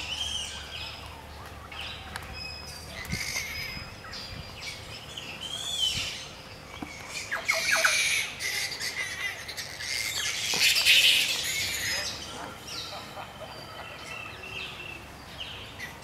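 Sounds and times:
fruit bats screeching: 2.4 - 14.6.

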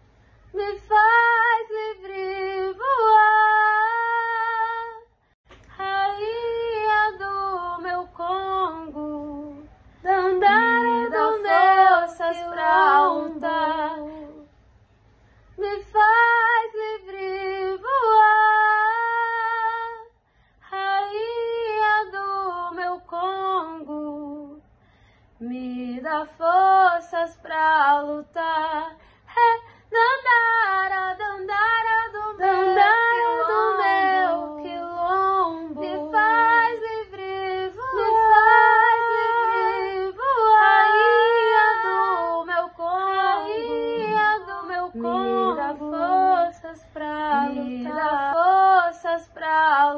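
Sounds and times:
woman singing unaccompanied: 0.6 - 5.1, 5.7 - 14.5, 25.4 - 49.9.

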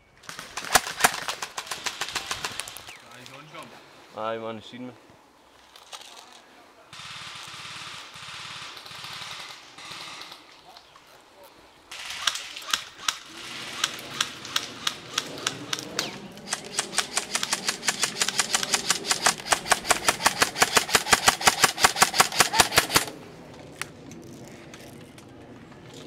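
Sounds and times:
airsoft rifles firing: 0.2 - 2.9, 7.0 - 10.5, 11.9 - 23.2.

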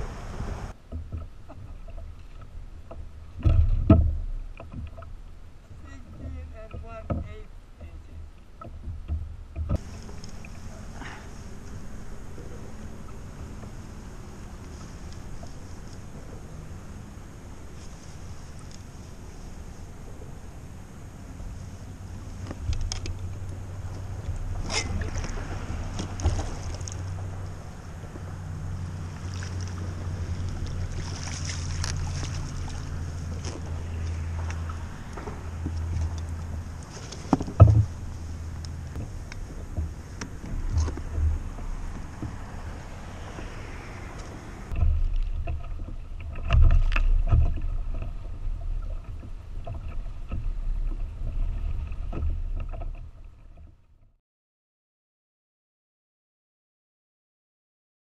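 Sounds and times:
water sloshing and splashing: 0.0 - 54.1
wind rumble on microphone: 0.0 - 54.2
knocks and clicks of gear: 0.8 - 5.2, 5.8 - 16.6, 22.3 - 28.3, 29.5 - 54.0.

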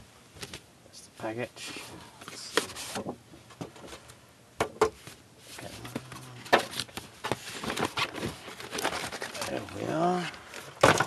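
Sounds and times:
cardboard rustling: 5.0 - 11.0.

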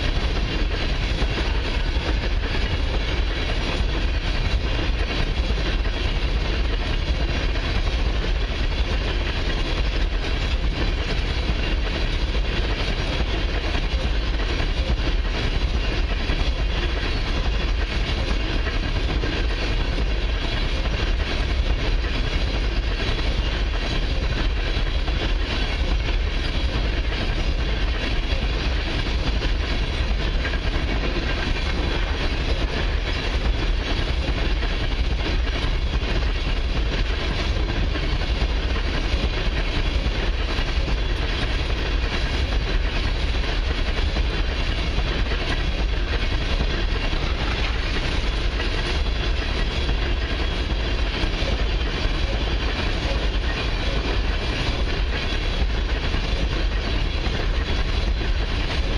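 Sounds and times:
freight train rolling past: 0.0 - 58.9.

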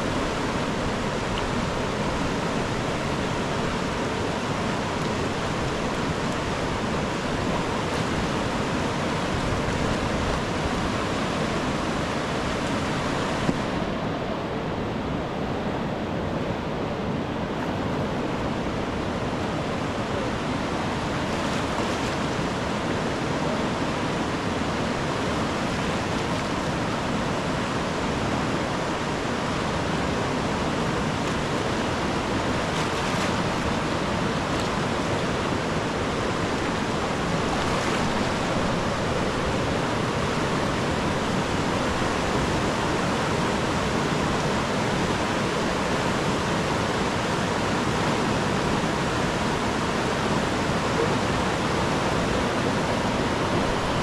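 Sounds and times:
river rushing: 0.0 - 54.0.

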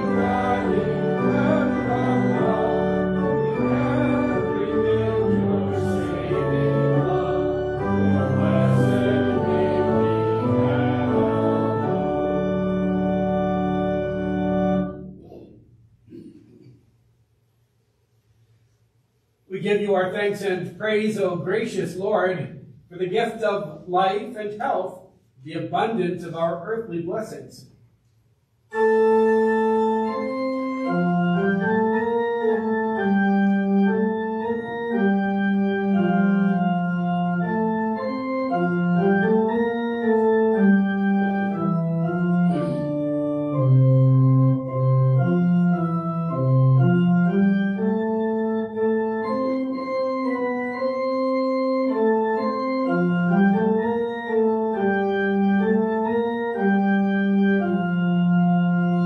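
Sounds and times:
church organ playing chords: 0.0 - 15.4, 28.7 - 59.0.

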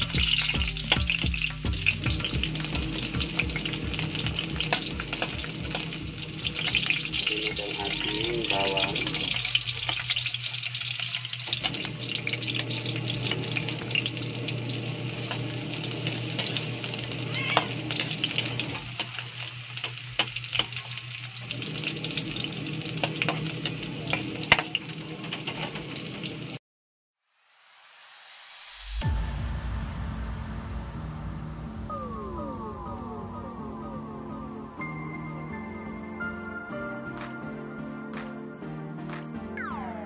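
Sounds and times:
onions sizzling in hot oil: 0.0 - 26.6.

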